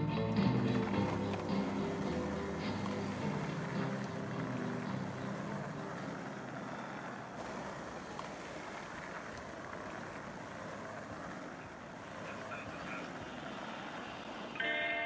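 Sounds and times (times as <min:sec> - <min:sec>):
background music: 0:00.0 - 0:06.5
skateboard wheels rolling on asphalt: 0:00.0 - 0:15.0.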